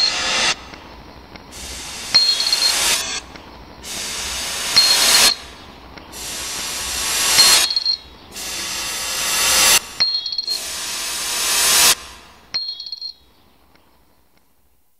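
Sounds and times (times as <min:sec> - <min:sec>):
hiss: 0:00.0 - 0:12.5
coin clinking into metal beaker: 0:02.2 - 0:02.8.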